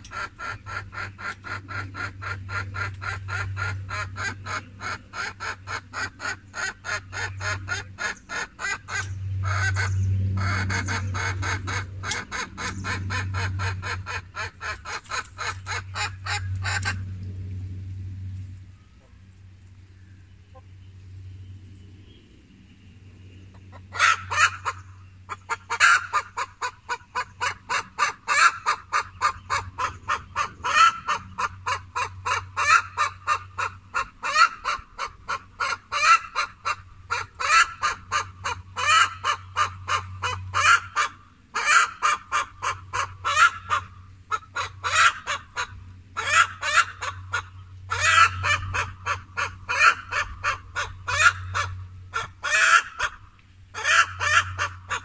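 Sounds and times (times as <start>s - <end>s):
geese honking: 25.6s - 53.2s, 53.8s - 55.0s.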